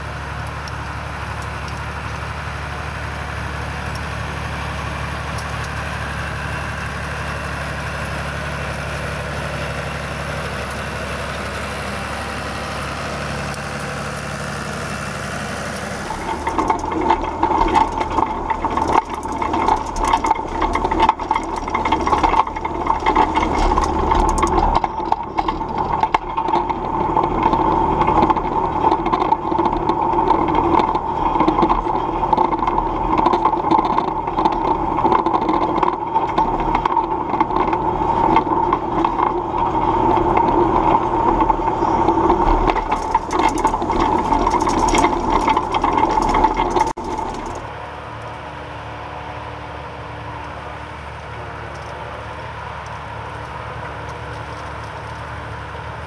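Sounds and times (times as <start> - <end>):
tractor diesel engine running: 0.0 - 56.0
rotary rake tines rattling: 13.2 - 47.8
steady whine: 15.8 - 47.9.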